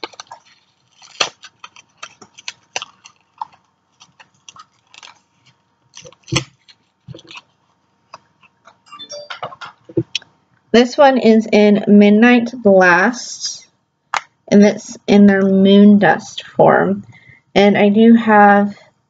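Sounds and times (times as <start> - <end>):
packages clicking and crinkling: 0.0 - 8.8.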